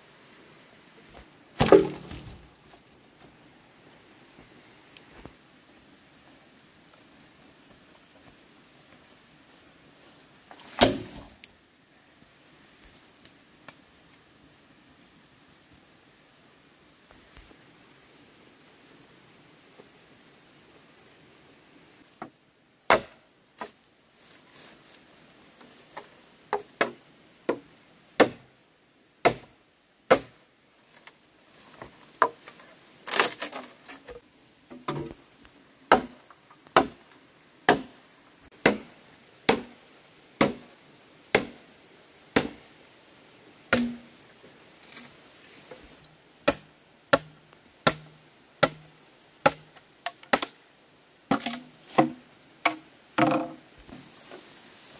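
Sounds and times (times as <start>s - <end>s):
machete chopping bamboo: 1.6s - 2.4s, 10.7s - 11.3s, 22.9s - 23.7s, 28.2s - 28.5s, 29.2s - 29.5s, 30.1s - 30.4s, 35.9s - 37.0s, 37.7s - 39.8s, 40.4s - 40.7s, 41.3s - 41.6s, 42.4s - 42.6s, 43.7s - 44.1s, 46.4s - 50.6s, 51.3s - 53.6s.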